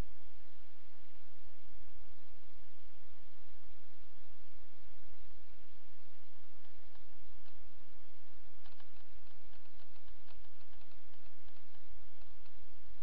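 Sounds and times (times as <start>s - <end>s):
low electrical hum and hiss: 0.0s - 13.0s
faint clicks and ticks: 5.2s - 13.0s.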